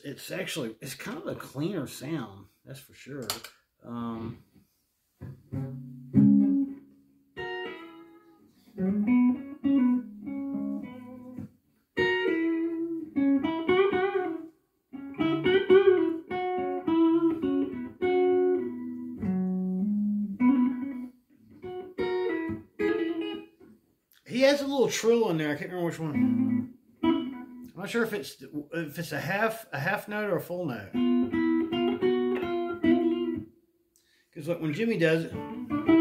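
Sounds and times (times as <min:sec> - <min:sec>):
electric guitar lead licks: 0:05.2 - 0:23.6, 0:24.2 - 0:27.8, 0:30.8 - 0:33.5, 0:34.7 - 0:36.0.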